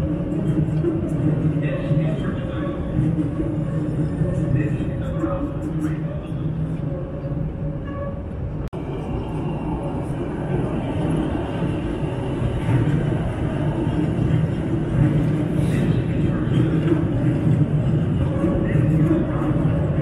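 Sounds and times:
elevated train rumbling: 0.0 - 20.0.

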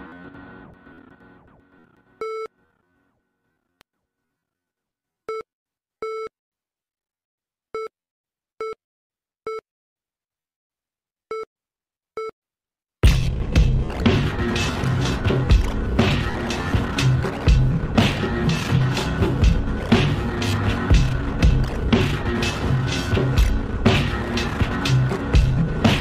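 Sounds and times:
music: 0.0 - 3.6, 13.0 - 26.0.

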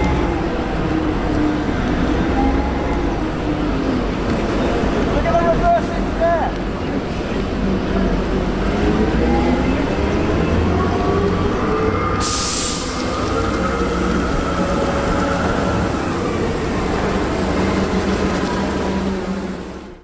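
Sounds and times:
heavy diesel engine rumble: 0.0 - 20.0
hiss: 12.2 - 13.3.

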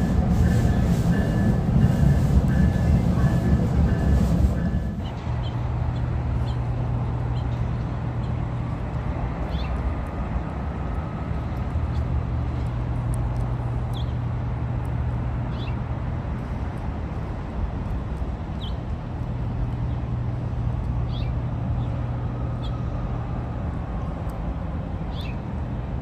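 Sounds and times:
low hum: 0.0 - 5.4.

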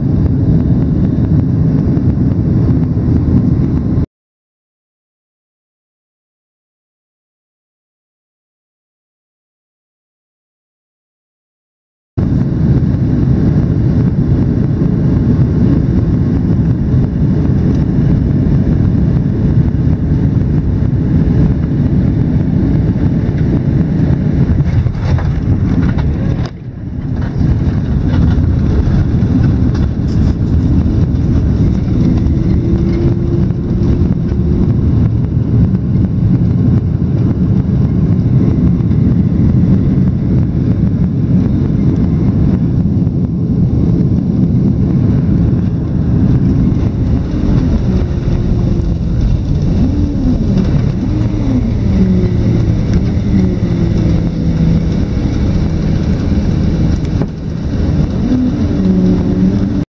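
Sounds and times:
jet engine cabin rumble: 0.0 - 4.1, 12.2 - 59.9
airflow past fuselage: 12.2 - 59.8.

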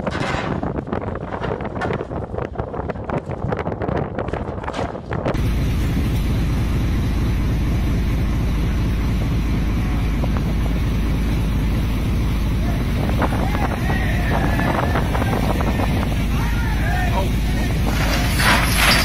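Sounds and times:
metal cracking and knocking: 0.0 - 2.1, 17.8 - 19.0
wind buffeting microphone: 0.0 - 18.3.

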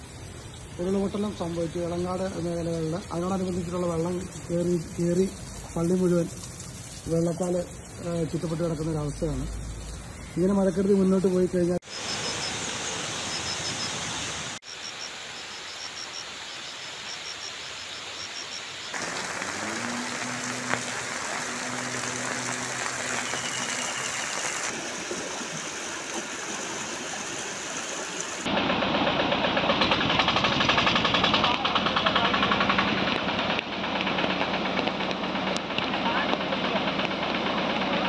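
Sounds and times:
floodwater rushing: 0.0 - 10.2, 11.8 - 28.6
heavy rain: 18.9 - 28.5
low engine hum: 19.0 - 25.7.

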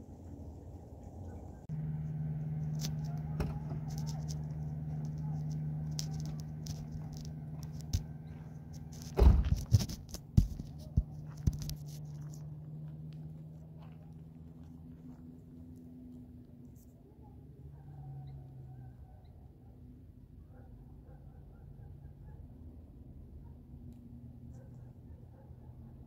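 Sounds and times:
car engine idling: 0.0 - 17.8
car door slammed shut: 9.2 - 9.7.

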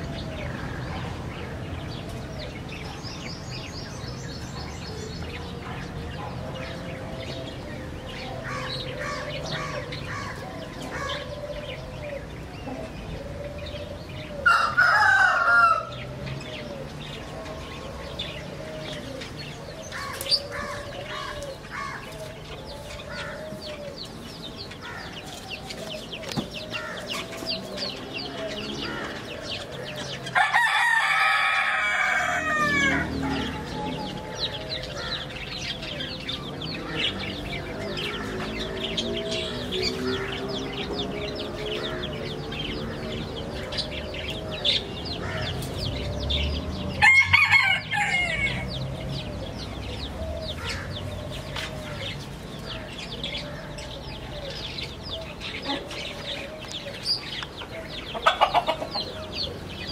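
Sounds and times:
chicks peeping: 0.0 - 59.9
rooster crowing: 14.4 - 16.1, 30.3 - 35.2, 47.0 - 48.8
hens clucking: 55.6 - 59.9.

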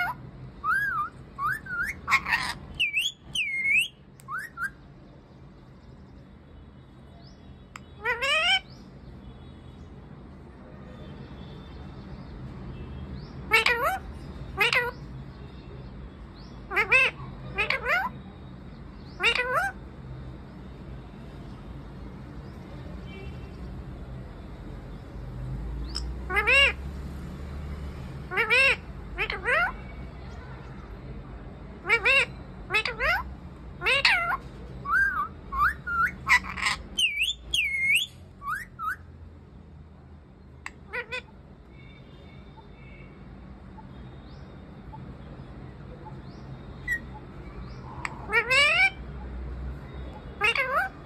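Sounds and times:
parakeet chirping and calling: 0.0 - 6.2, 7.2 - 9.3, 13.0 - 15.4, 16.1 - 20.5, 24.7 - 30.2, 31.7 - 39.3, 40.5 - 51.0.

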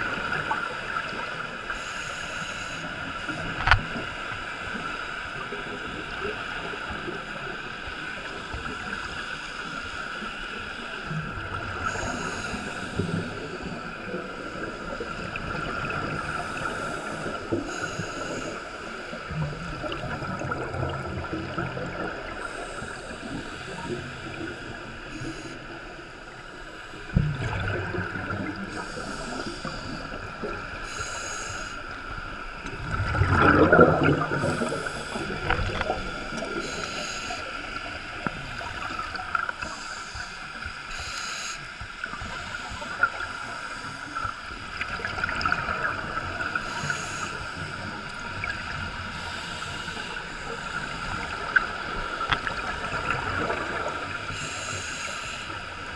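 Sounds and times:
regulator breathing underwater: 0.6 - 3.8, 11.6 - 20.5, 21.2 - 55.9
exhaled bubbles: 19.3 - 24.8, 27.1 - 30.7, 32.6 - 36.8
loud rush of bubbling: 32.8 - 34.7.

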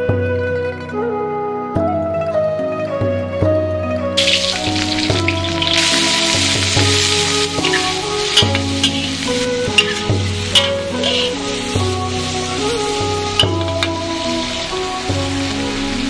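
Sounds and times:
metal spatula knocking wok: 4.2 - 12.0, 13.3 - 14.0
shrimp sizzling in oil: 4.2 - 16.0.

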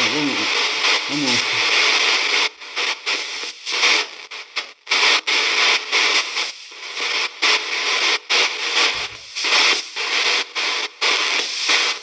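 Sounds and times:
chopped radio static: 0.0 - 3.2, 8.3 - 10.0.

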